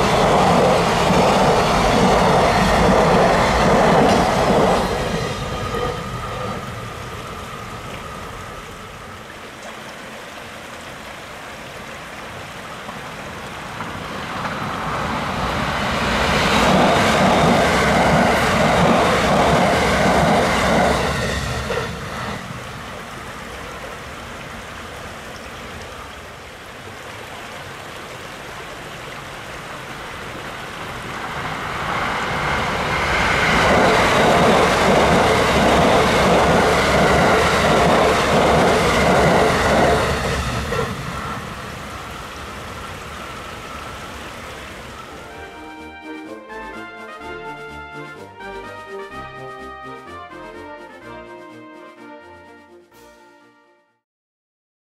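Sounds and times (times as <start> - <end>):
trains passing: 0.0 - 53.6.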